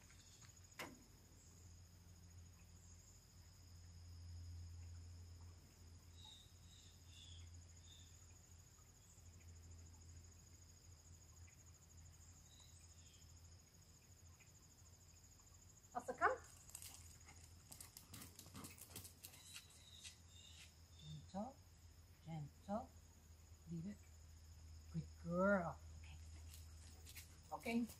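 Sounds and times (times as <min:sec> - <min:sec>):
light ticks and scuffs: 0:16.5 - 0:20.8, 0:26.0 - 0:27.9.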